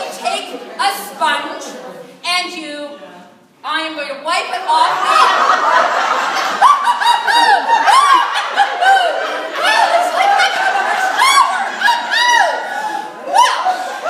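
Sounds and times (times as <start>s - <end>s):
women laughing loudly: 4.9s - 14.0s.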